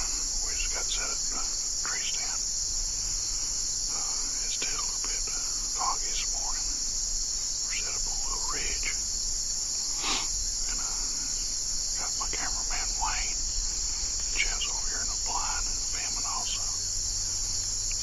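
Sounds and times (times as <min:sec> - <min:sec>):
insects shrilling: 0:00.0 - 0:18.0.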